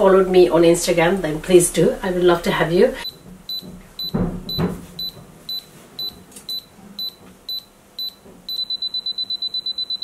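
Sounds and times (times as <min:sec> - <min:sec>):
camera self-timer beeping: 0:05.5 - 0:10.0.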